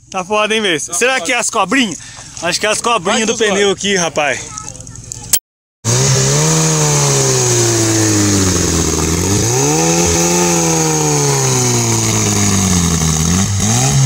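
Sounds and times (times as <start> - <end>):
buggy engine running hard: 5.9 - 14.0.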